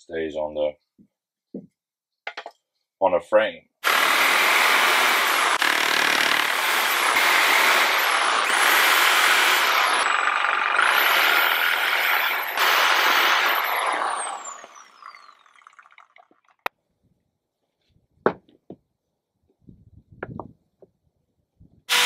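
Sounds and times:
reciprocating saw cutting wood: 3.8s - 16.1s.

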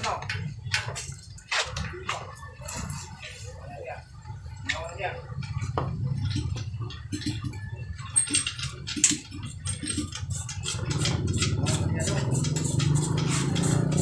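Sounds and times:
engine humming: 5.3s - 14.0s.

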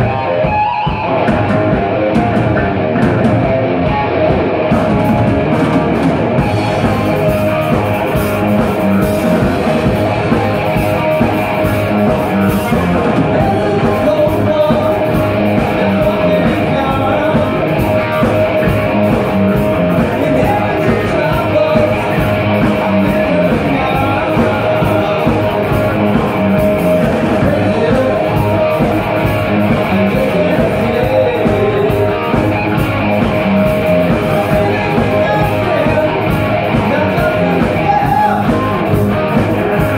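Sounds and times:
bass guitar: 0.0s - 39.9s
distorted electric guitar: 0.0s - 39.9s
drum kit: 0.0s - 39.9s
lead singer singing: 12.4s - 39.9s.

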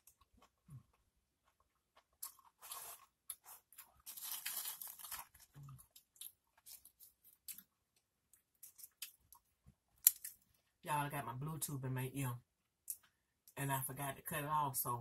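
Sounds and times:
tortilla chips rustling and crackling: 1.9s - 7.7s.

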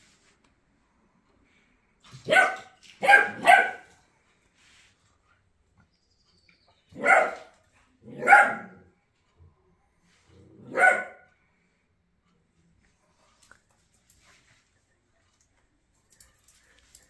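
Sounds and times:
dog barking: 2.2s - 3.9s, 6.9s - 8.9s, 10.6s - 11.3s.

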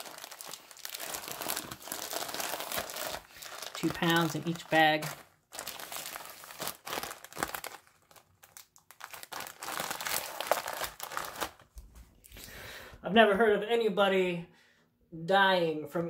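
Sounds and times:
plastic bags crinkling: 0.0s - 11.7s.

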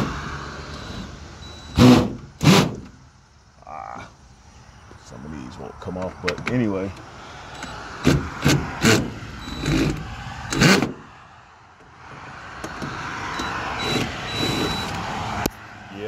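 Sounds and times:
motor vehicle running: 0.0s - 3.2s, 5.7s - 16.0s.

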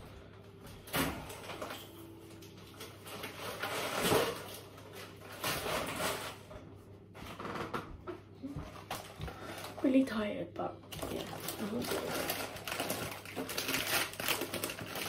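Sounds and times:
rustling and clatter at a sink: 0.0s - 15.0s.

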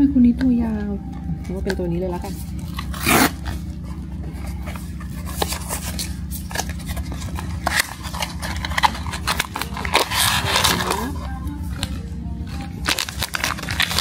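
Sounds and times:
steady low hum: 0.0s - 14.0s
foil bag crinkling: 4.6s - 14.0s.

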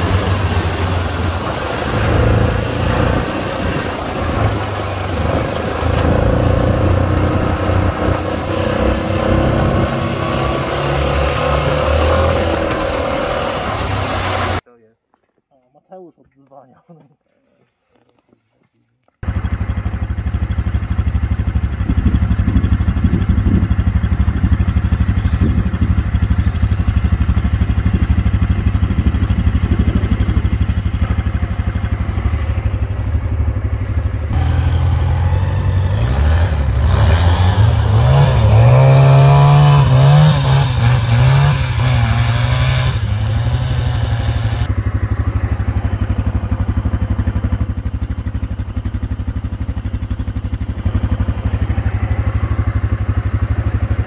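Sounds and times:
quad bike engine revving: 0.0s - 14.6s, 19.2s - 54.0s.

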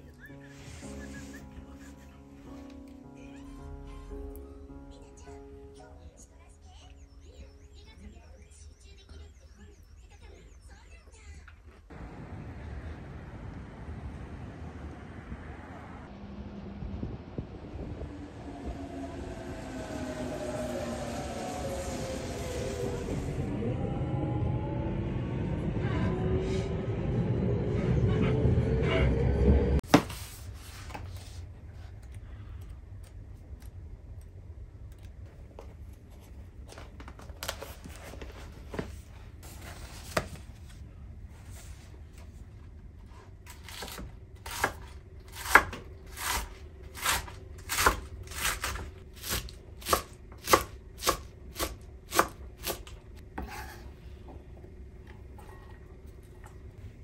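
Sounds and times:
knife chopping cabbage on wood: 43.5s - 53.8s.

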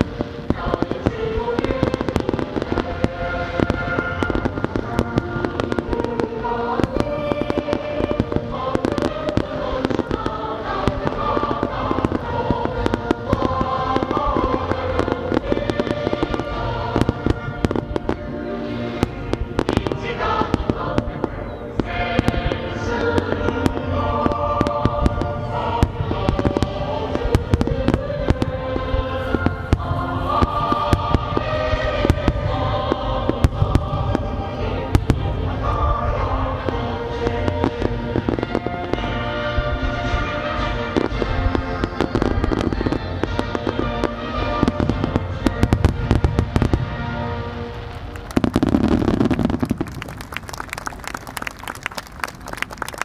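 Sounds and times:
music playing: 0.0s - 52.6s
fireworks bangs and crackles: 0.0s - 53.0s.

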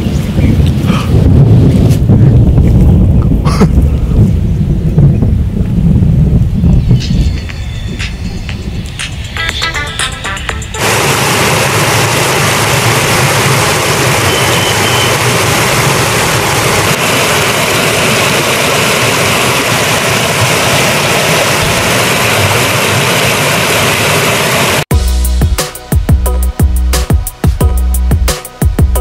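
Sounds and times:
stream rushing over rocks: 10.8s - 24.8s.

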